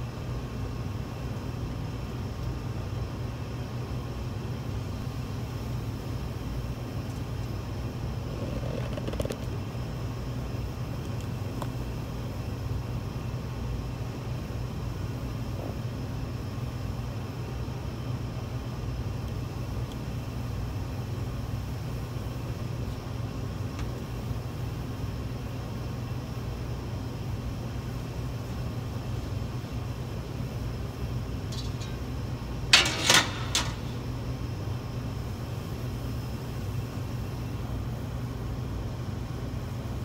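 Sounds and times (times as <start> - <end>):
kitchen machine hum: 28.0 - 36.1
loud clattering knocks: 32.7 - 34.1.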